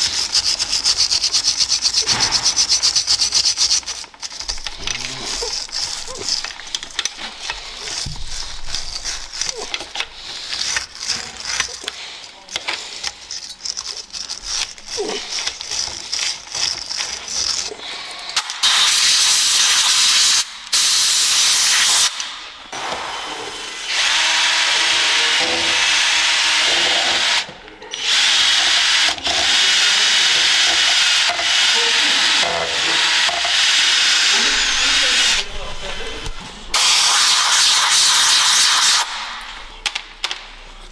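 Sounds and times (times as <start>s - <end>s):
power drill spinning wire brush: 0.0s - 12.1s, 23.4s - 39.8s
wire brush scraping metal: 0.0s - 22.1s.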